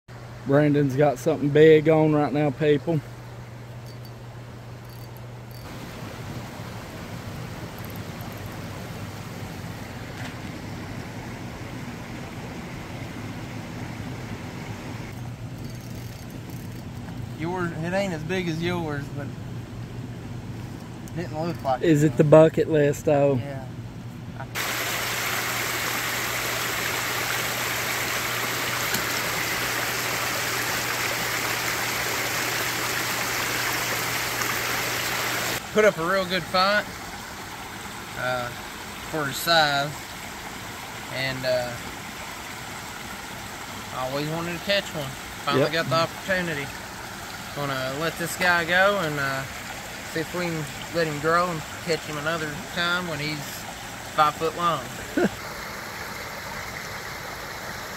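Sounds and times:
water rushing: 4.9s - 15.2s, 24.4s - 57.9s.

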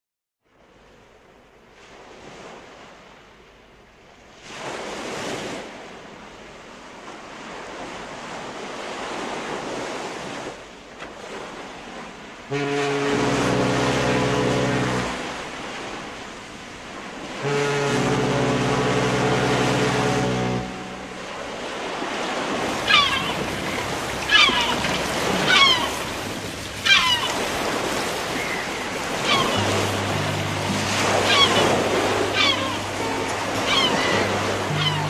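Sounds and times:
small waves lapping: 0.6s - 35.0s
low sustained tones: 22.7s - 35.0s.

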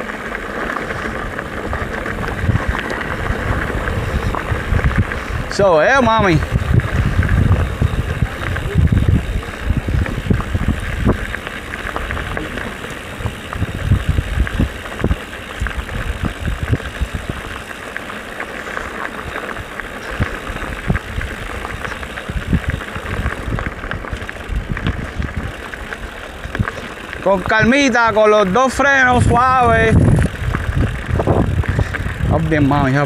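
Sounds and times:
bike tyres rolling on dirt: 0.0s - 33.0s
wind on microphone: 1.2s - 17.6s, 19.9s - 25.6s, 29.0s - 33.0s
bike knocks and rattles: 6.2s - 28.0s.

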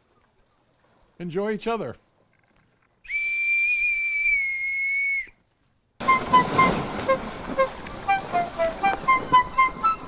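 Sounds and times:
high whistle note: 6.0s - 10.0s.

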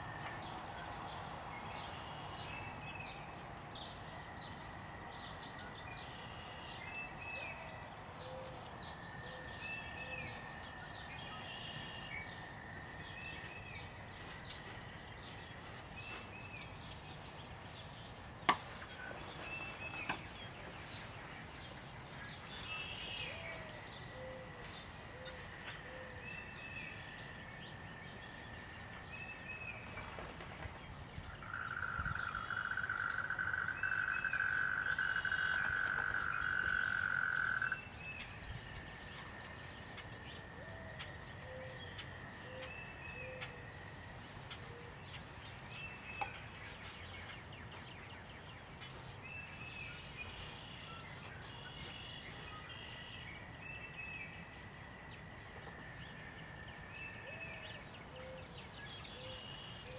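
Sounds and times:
birds chirping: 0.0s - 59.9s
frog trilling: 31.4s - 37.8s.

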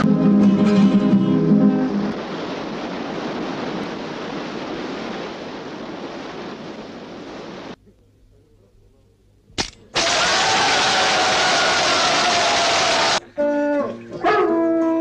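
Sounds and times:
rushing wind: 0.0s - 7.8s.

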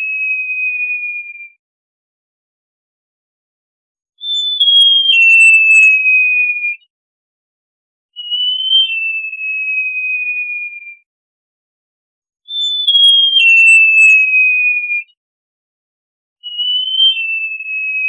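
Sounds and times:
bird whistles: 4.2s - 6.8s, 8.2s - 10.9s, 12.5s - 15.1s, 16.4s - 18.0s.

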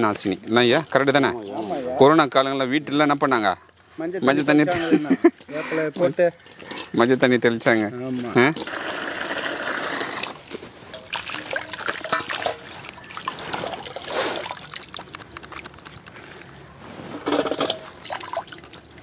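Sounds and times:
water pouring and sloshing: 0.0s - 3.9s, 9.7s - 19.0s
water splashes: 9.2s - 16.3s, 17.2s - 19.0s.

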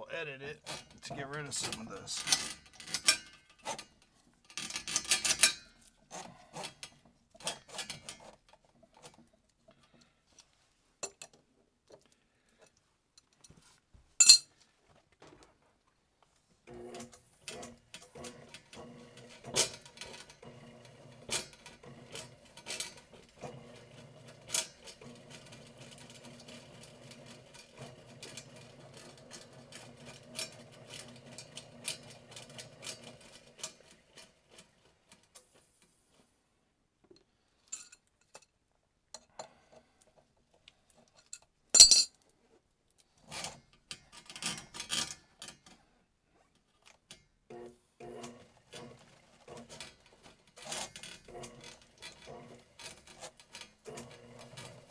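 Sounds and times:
metal cable clicking and clanking: 0.6s - 10.1s, 43.0s - 45.8s, 48.2s - 54.9s
drain auger motor humming: 16.7s - 33.8s, 47.5s - 54.9s.

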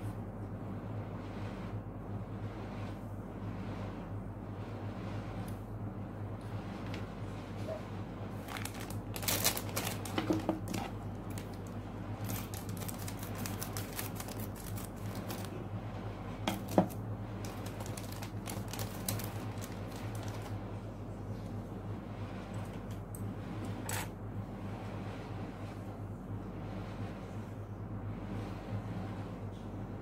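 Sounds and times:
steady low hum: 0.0s - 30.0s
plastic bag crinkling: 8.4s - 15.6s, 16.5s - 20.6s.

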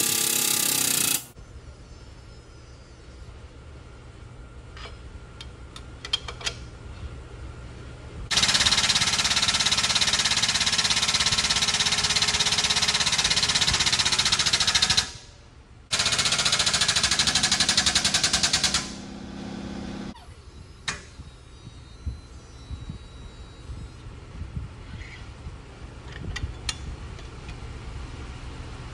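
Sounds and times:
hydraulic pump pulsing: 15.9s - 24.0s.

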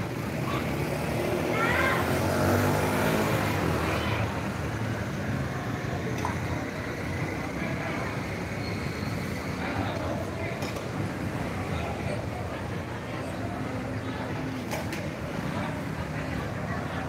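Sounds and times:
small motor vehicle engine: 0.0s - 12.6s
street din: 0.0s - 17.0s.

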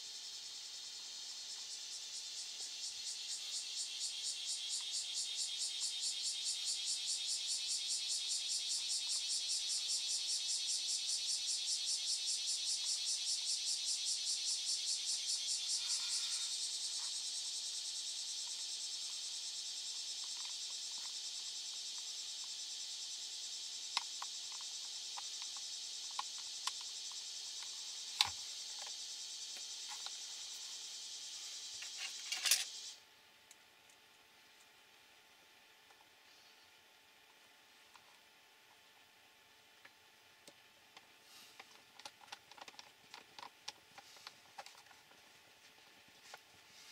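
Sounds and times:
high insect trill: 0.0s - 33.2s
plastic parts clicking: 41.6s - 43.8s.

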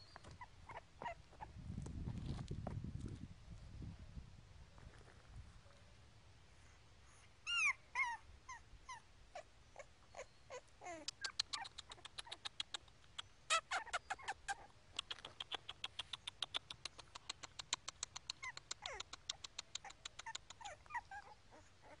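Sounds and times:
puppy whimpering: 0.4s - 1.2s, 7.2s - 12.4s, 13.5s - 14.7s, 18.2s - 22.0s.

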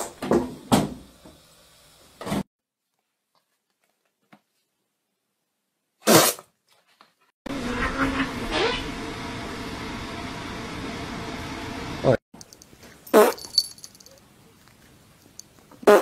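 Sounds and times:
fart sound: 6.0s - 6.4s, 13.1s - 13.5s.

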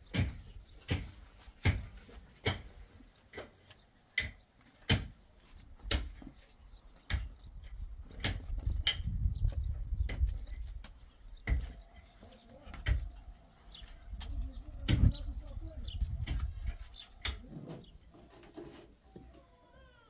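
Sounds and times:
wind rumble on microphone: 7.4s - 11.6s, 13.9s - 17.0s.

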